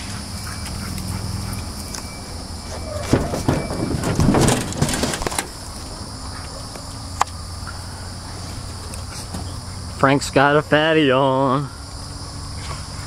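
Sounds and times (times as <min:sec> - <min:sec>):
knocks and rustling: 0:00.0 - 0:07.3
high insect drone: 0:00.0 - 0:13.0.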